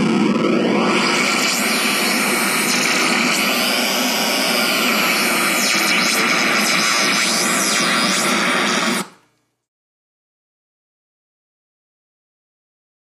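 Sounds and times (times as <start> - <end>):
synthesizer hiss-like noise: 0.0 - 9.2.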